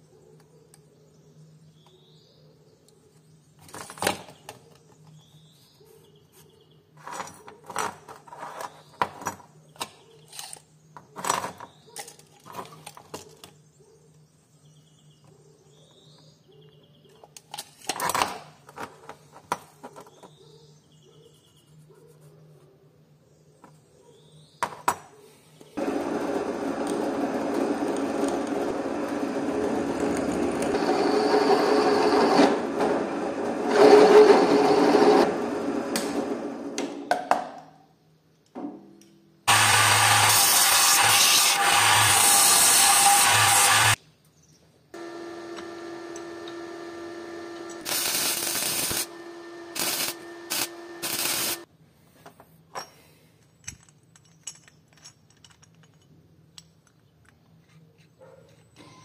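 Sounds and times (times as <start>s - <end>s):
electric power tool running: 25.8s - 32.7s, 39.5s - 44.0s, 45.0s - 51.7s
metal parts knocking: 53.6s - 57.4s.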